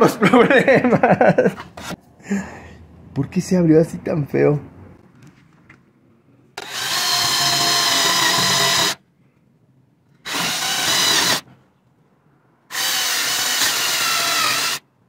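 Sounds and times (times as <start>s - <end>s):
cordless drill boring into wood: 6.6s - 9.0s, 10.2s - 11.4s, 12.7s - 14.8s.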